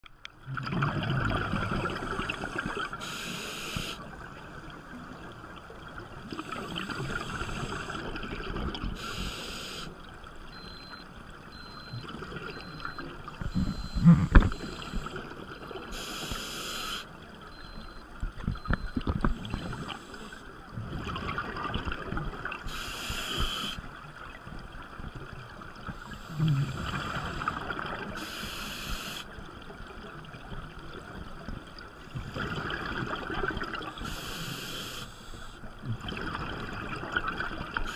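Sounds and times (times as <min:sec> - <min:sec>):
exhaled bubbles gurgling: 0:00.4 - 0:09.3, 0:11.5 - 0:16.4, 0:18.6 - 0:29.1, 0:29.8 - 0:34.9, 0:35.8 - 0:37.9
regulator inhale hiss: 0:02.2 - 0:04.0, 0:06.5 - 0:08.0, 0:09.0 - 0:10.0, 0:15.9 - 0:17.1, 0:22.6 - 0:23.9, 0:28.2 - 0:29.3, 0:34.0 - 0:35.6.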